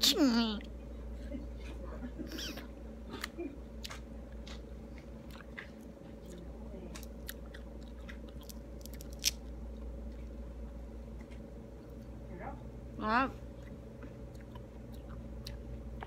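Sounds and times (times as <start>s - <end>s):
steady low hum: 0.0s - 16.0s
person chewing: 3.1s - 12.2s, 13.5s - 16.0s.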